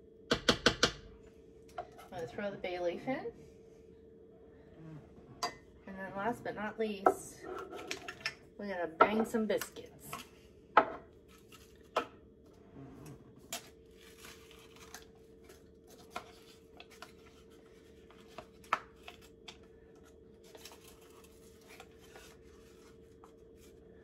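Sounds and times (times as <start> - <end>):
paper wrapper peeling: 13.4 - 19.6.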